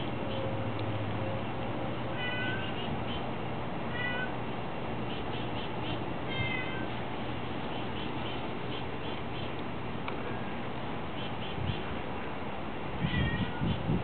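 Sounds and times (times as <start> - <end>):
cat meowing: 2.2 - 2.8, 3.9 - 4.4, 6.3 - 6.9, 13.0 - 13.7.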